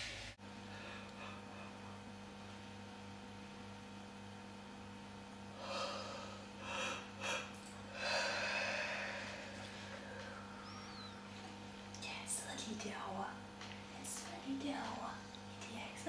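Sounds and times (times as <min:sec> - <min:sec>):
faint electrical hum: 0:00.0 - 0:16.0
breathy gasps: 0:05.6 - 0:10.9.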